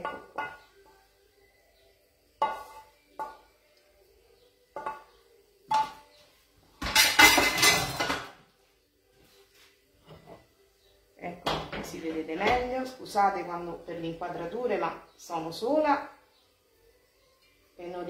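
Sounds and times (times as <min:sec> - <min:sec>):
metal utensil clinking on pan: 0:06.8 - 0:08.3.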